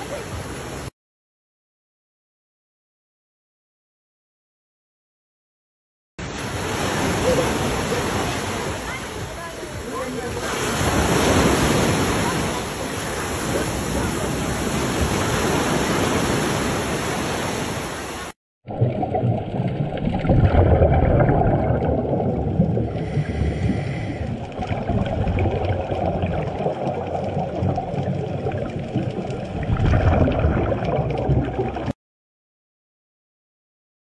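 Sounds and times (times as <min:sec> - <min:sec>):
waves breaking at shore: 0:00.0 - 0:00.9, 0:06.2 - 0:18.4
underwater exhaled bubbles: 0:18.7 - 0:32.0
diver breathing through regulator: 0:22.8 - 0:24.5.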